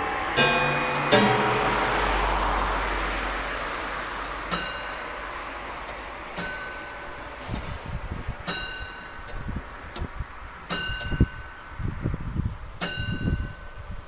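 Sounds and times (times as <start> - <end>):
clock bell striking: 0.0 - 5.2, 6.4 - 7.4
low rumbling: 0.0 - 5.8.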